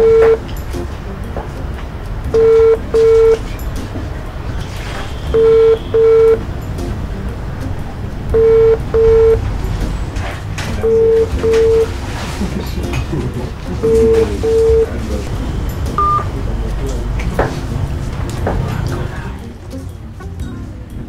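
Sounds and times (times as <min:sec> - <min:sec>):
phone ringback double beeps: 0:00.0 - 0:00.4, 0:02.4 - 0:03.4, 0:05.4 - 0:06.4, 0:08.4 - 0:09.4, 0:10.8 - 0:11.9, 0:13.8 - 0:14.9, 0:16.0 - 0:16.3.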